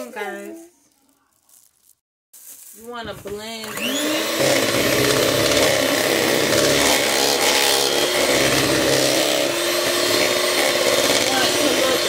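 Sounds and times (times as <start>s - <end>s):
electric hand mixer whirring: 3.3s - 12.0s.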